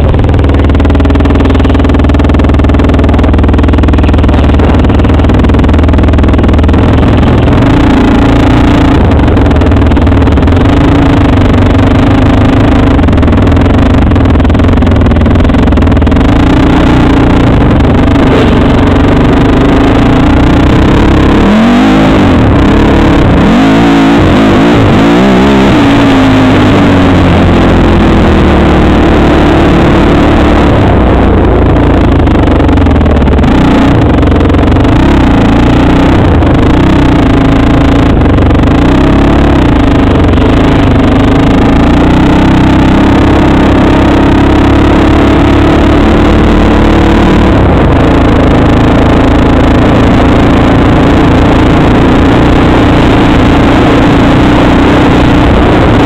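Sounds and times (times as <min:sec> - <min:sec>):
quad bike engine revving: 0:00.0 - 0:56.0.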